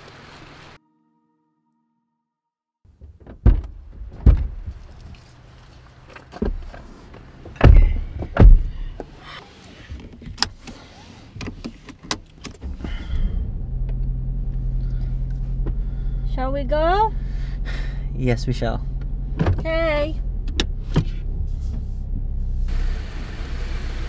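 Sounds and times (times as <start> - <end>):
car doors thumping shut: 3.0 - 4.9, 7.4 - 9.2, 19.3 - 19.9.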